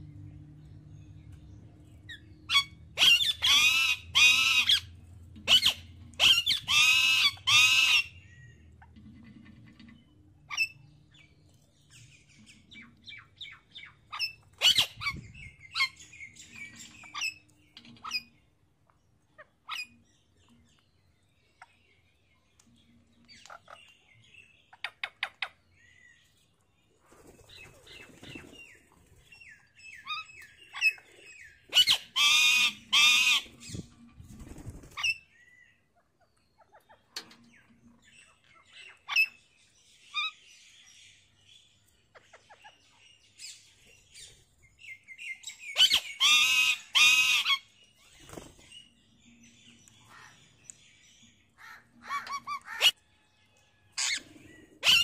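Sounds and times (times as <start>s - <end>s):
parakeets chirping and squawking: 2.0s - 11.3s, 12.0s - 18.5s, 27.5s - 35.3s, 45.4s - 48.9s, 49.6s - 53.1s, 53.9s - 55.0s.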